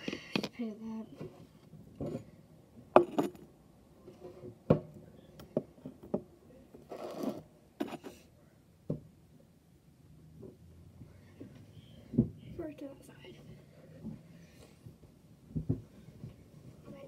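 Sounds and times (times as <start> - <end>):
objects knocking and clattering: 1.2 - 3.6, 15.5 - 16.4.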